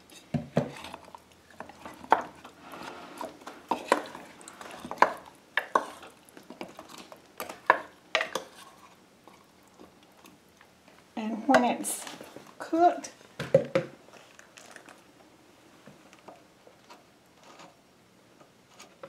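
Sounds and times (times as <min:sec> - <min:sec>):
wooden spoon stirring food: 0:00.0 - 0:13.2.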